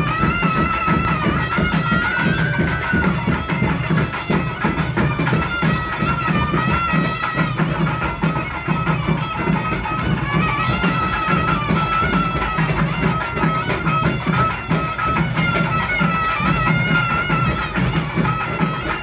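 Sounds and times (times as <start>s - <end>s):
barrel drums beating: 0.0s - 19.0s
piping wind instrument melody: 0.0s - 19.0s.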